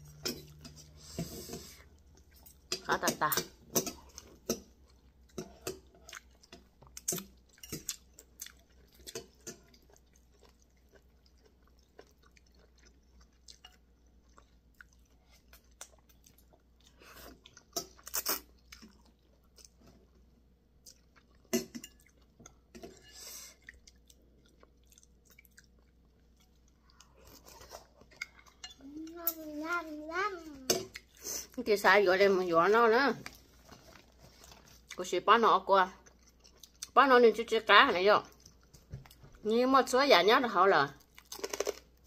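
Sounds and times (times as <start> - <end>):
wet chewing and lip smacks: 23.6 - 27.2.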